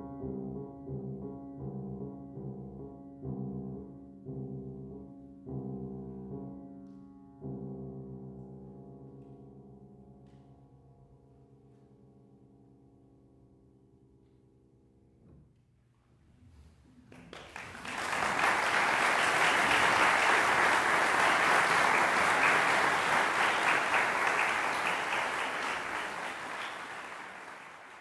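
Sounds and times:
audience applauding: 17.1 - 28.0.

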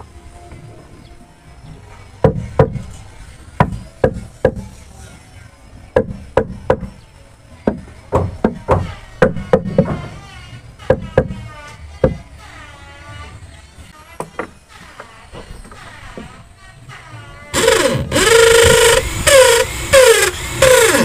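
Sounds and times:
hammer striking wood: 2.2 - 2.9, 3.6 - 4.7, 6.0 - 7.0, 7.6 - 10.2, 10.9 - 11.4.

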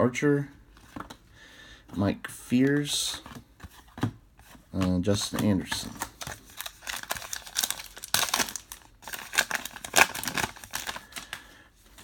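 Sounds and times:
wrapper tearing and crinkling: 5.6 - 11.4.

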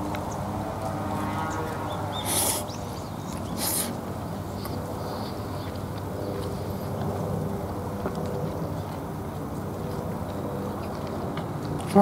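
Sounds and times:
low outdoor hum: 0.0 - 12.0
man chewing: 2.1 - 11.9
man slurping: 2.2 - 2.7, 3.6 - 4.0.

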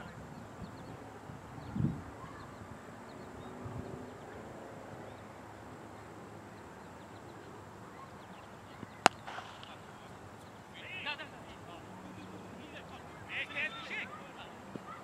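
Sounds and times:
bat striking cricket ball: 8.8 - 10.0.

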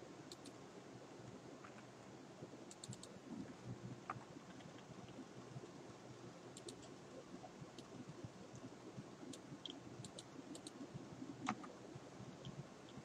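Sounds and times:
low background hum: 0.0 - 13.0
keyboard and mouse clicks: 0.3 - 0.6, 2.7 - 3.2, 6.5 - 7.0, 9.3 - 10.8, 11.4 - 11.8.

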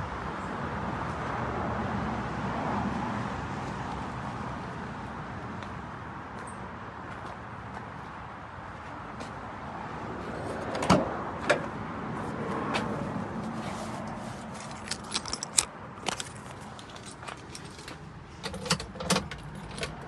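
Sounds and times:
keys jangling: 14.6 - 20.0.

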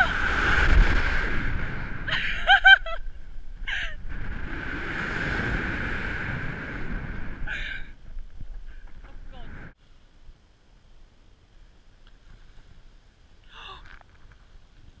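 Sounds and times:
wind on microphone: 0.0 - 9.8.

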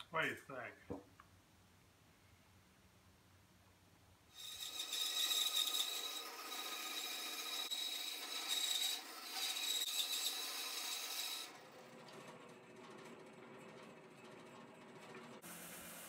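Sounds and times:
bandsaw cutting wood: 4.3 - 11.6.

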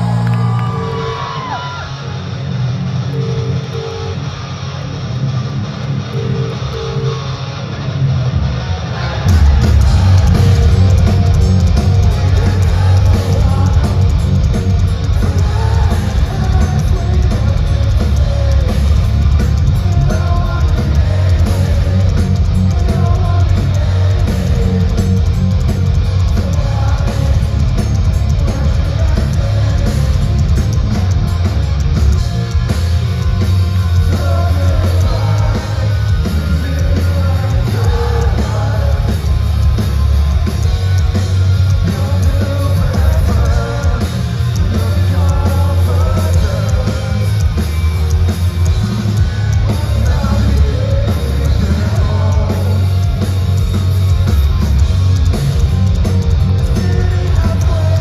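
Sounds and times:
live rock band playing loudly: 0.0 - 58.0
person singing: 41.8 - 47.5, 49.6 - 53.1, 56.6 - 58.0.

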